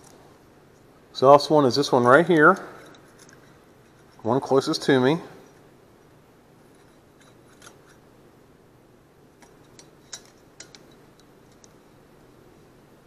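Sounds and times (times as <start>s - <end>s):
metal feeler gauge clicks and scrapes: 1.9s - 4.4s, 6.7s - 8.0s, 9.4s - 11.8s.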